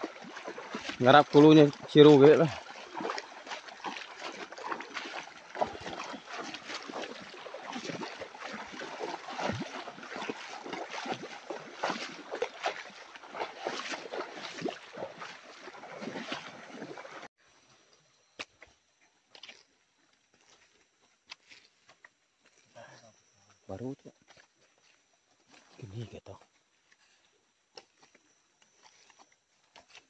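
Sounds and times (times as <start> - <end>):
river water rushing: 0.0 - 17.3.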